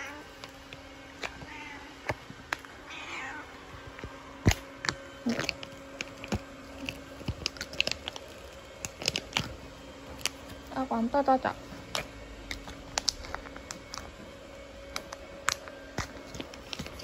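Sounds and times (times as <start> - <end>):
cat meowing: 1.4 - 1.9, 2.8 - 3.6.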